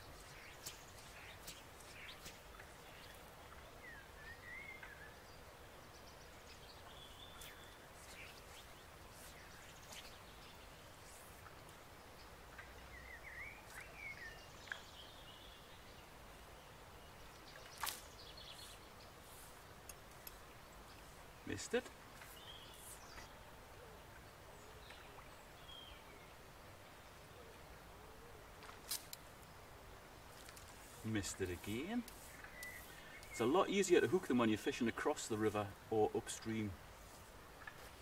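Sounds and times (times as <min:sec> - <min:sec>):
flowing water: 0:00.0 - 0:14.9, 0:16.0 - 0:25.6
songbirds calling: 0:00.0 - 0:38.0.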